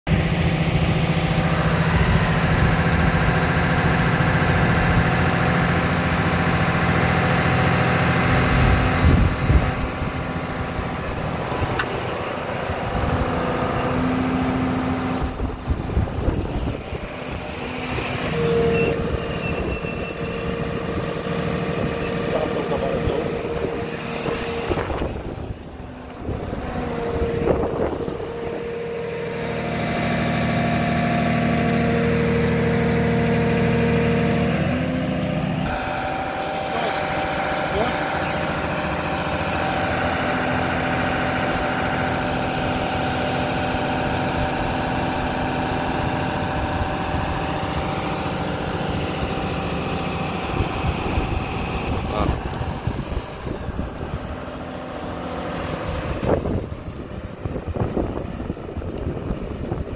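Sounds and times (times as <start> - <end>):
high-pitched whine: 0.1 - 55.2
drill rig engine and hydraulics hum: 0.1 - 59.9.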